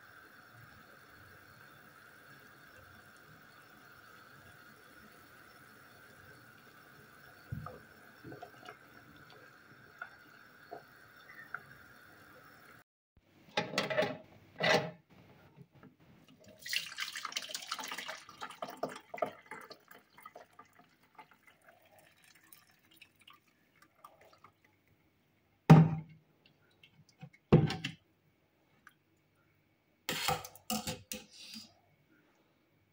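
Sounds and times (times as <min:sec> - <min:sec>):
hot liquid pouring through sieve: 0:16.4 - 0:24.6
pot clunks: 0:25.7 - 0:26.1.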